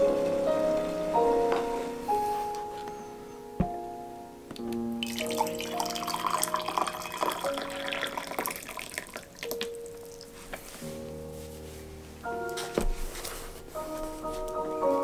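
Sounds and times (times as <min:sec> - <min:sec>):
soft melodic music: 0:00.0 - 0:15.0
water pouring into a mug: 0:05.0 - 0:09.6.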